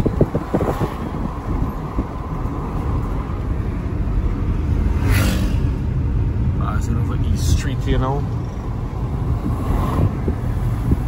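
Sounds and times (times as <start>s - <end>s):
car engine and road rumble: 0.0s - 11.0s
brief rush of noise: 4.9s - 5.9s.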